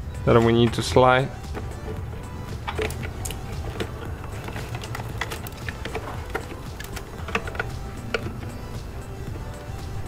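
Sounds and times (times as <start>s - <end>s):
plastic connectors clicking and rattling: 1.4s - 9.0s.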